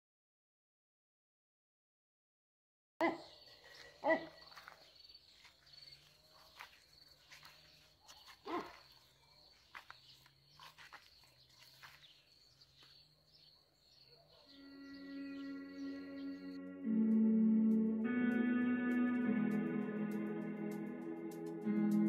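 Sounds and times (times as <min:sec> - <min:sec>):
dog barking: 0:08.0 - 0:09.1, 0:13.1 - 0:14.8.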